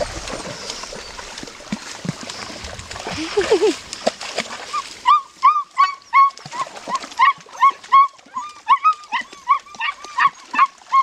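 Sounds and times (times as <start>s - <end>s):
puppy yelping: 7.2s - 11.0s.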